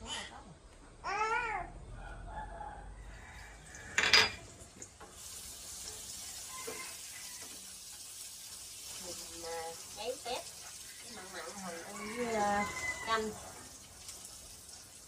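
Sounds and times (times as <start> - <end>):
food sizzling in a pan: 3.2 - 15.0.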